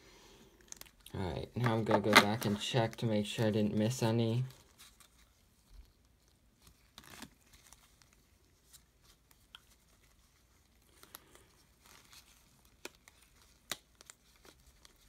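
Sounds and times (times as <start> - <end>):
trading cards clicking and rustling: 0.7 - 3.1.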